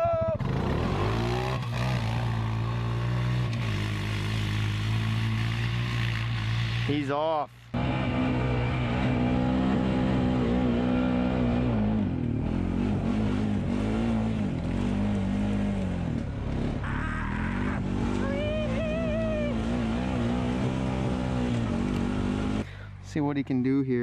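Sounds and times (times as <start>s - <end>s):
quad bike engine revving: 0.0s - 7.2s, 7.8s - 22.7s.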